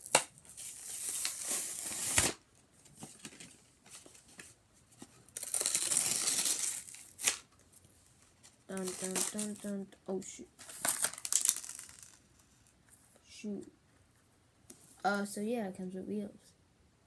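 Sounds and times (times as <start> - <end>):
cardboard ripping: 0.1 - 2.4, 5.4 - 7.4, 8.7 - 9.6.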